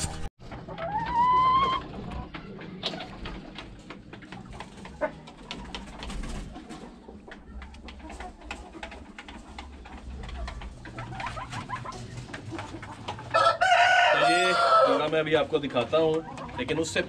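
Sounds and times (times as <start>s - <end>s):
clicks and scratches: 0.0s - 13.4s.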